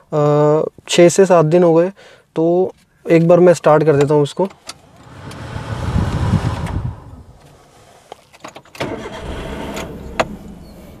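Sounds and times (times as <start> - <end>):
car engine cranking and starting: 4.4 - 7.8, 8.4 - 11.0
car engine running: 4.8 - 7.6.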